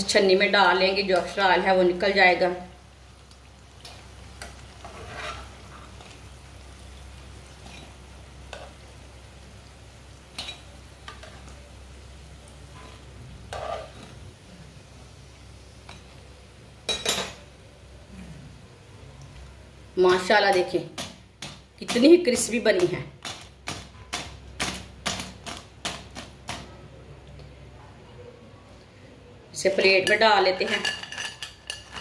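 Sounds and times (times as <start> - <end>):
food sizzling in oil: 0.0 - 18.1, 29.6 - 32.0
metal utensils scraping a pan: 4.4 - 6.2, 7.6 - 8.7, 12.7 - 14.2, 29.7 - 32.0.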